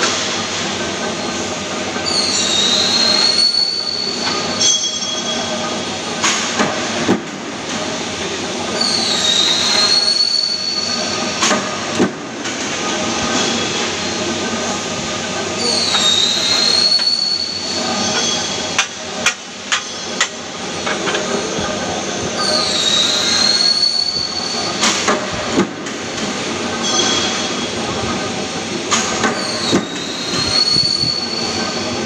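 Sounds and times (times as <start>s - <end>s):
high squealing whine: 2.0s - 5.8s, 15.4s - 18.8s, 20.8s - 24.9s, 29.0s - 32.0s.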